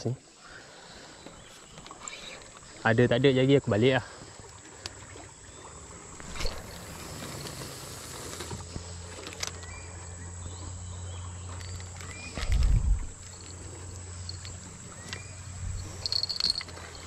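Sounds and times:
low steady hum: 6.0 - 17.0.

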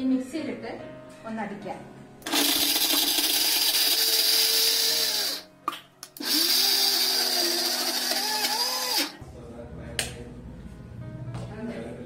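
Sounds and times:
mixer grinder motor running: 2.2 - 5.4, 6.2 - 9.2.

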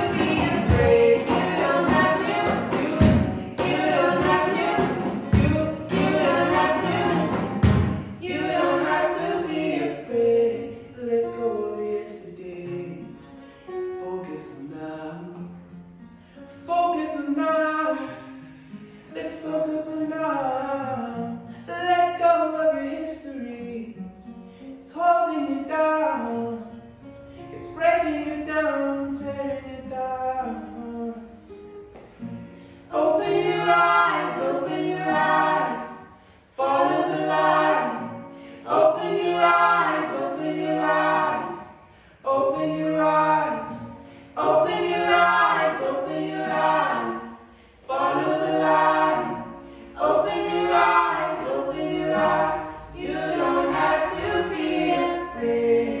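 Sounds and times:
choir singing: 0.0 - 11.0, 32.8 - 56.0.

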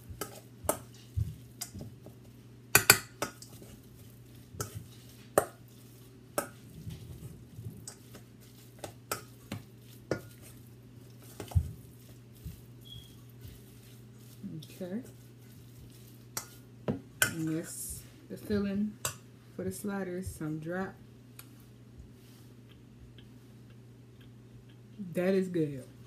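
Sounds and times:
spoon scraping a metal bowl: 12.8 - 14.4.

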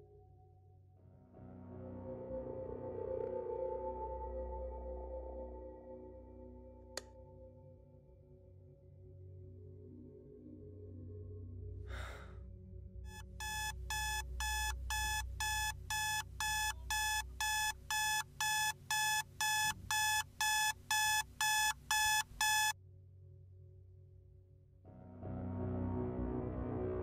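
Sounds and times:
smartphone alarm beeping: 13.1 - 22.8.

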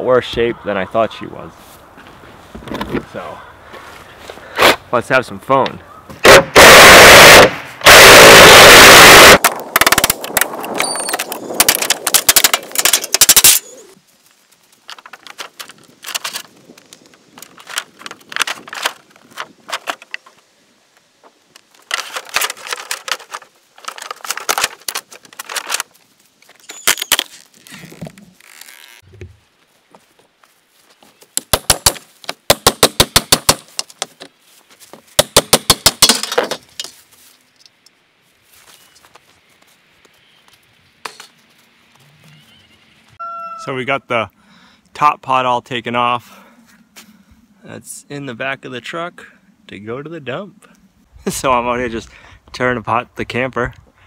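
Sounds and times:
panels cracking and clattering: 21.8 - 25.9
sharp evenly spaced knocks: 31.4 - 34.1, 35.2 - 36.2.

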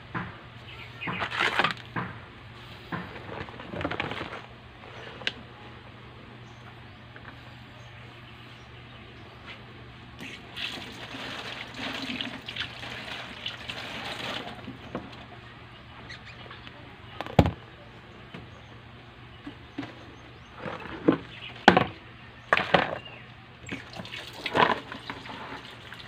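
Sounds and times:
steady low hum: 0.0 - 24.0
water splashing and running: 10.3 - 14.8, 23.7 - 26.0.

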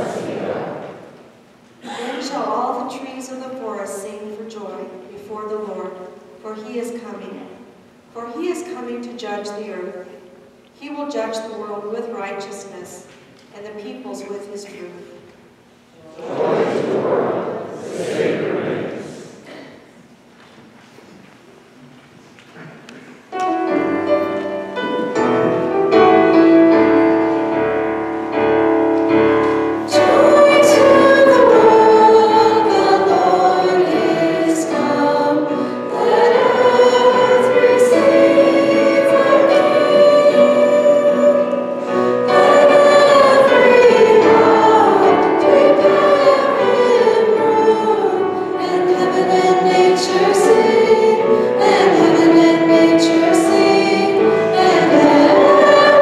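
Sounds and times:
instrumental accompaniment: 23.3 - 56.0
women singing: 29.9 - 41.6, 42.2 - 56.0.

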